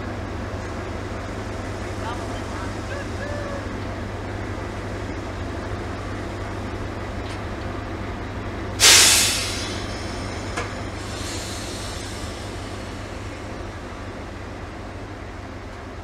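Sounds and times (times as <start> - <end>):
diesel locomotive idling: 0.0 - 16.0
compressed air hissing: 8.8 - 14.0.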